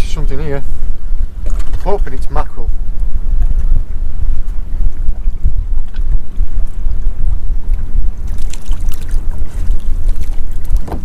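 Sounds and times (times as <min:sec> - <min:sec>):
wind buffeting microphone: 0:00.0 - 0:11.0
sea water sloshing: 0:08.1 - 0:11.0.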